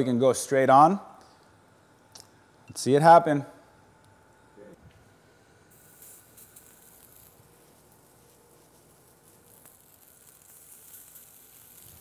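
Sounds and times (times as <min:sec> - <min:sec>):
fish searing on a grill: 0:05.5 - 0:12.0.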